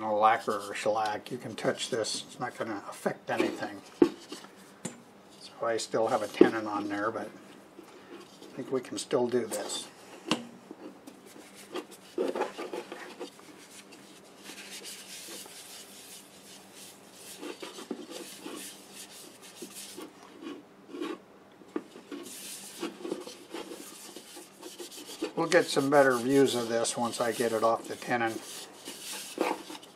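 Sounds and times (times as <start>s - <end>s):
paper towel rubbing wood bowl: 10.8s - 21.2s, 21.9s - 29.9s.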